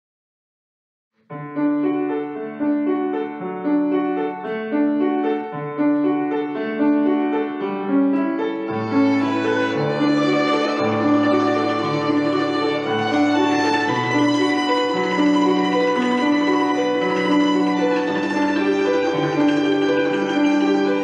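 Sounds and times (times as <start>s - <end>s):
piano: 1.2s - 21.0s
violin: 8.7s - 21.0s.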